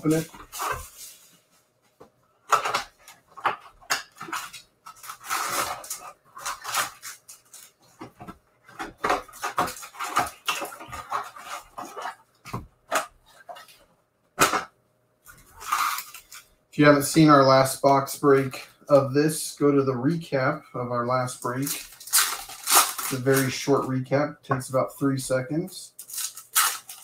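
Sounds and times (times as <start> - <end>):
foil packs crinkling: 2.5 - 7.9, 8.7 - 12.2, 15.4 - 16.5, 21.5 - 23.8, 26.0 - 27.0.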